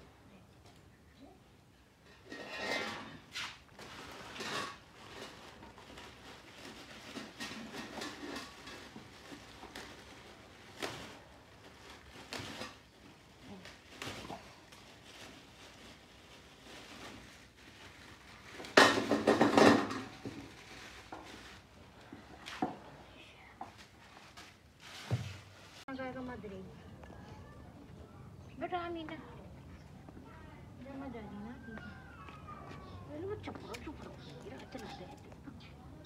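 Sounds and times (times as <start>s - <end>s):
pots and dishes clattering: 7.0s - 9.1s, 18.6s - 20.4s.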